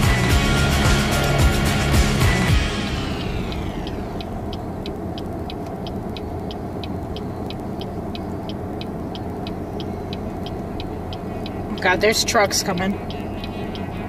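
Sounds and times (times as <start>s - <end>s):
car engine idling: 0.0s - 14.0s
turn signal clicking: 2.9s - 14.0s.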